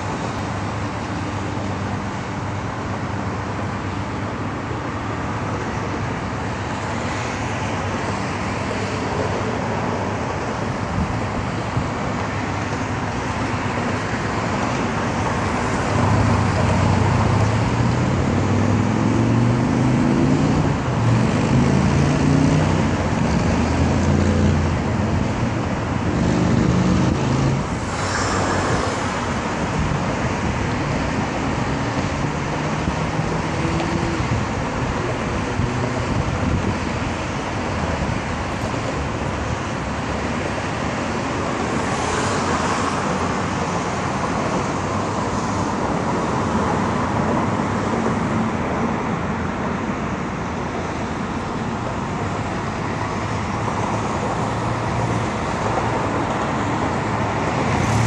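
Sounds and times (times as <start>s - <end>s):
road traffic noise: 0.0s - 58.0s
vehicle passing close: 54.4s - 58.0s.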